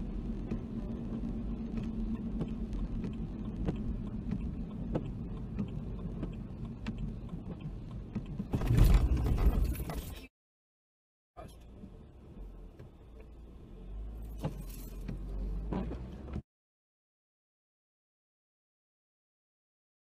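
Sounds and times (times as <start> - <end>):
rain ticks: 0.0 - 8.5
car driving on wet road: 0.0 - 10.2, 11.4 - 16.4.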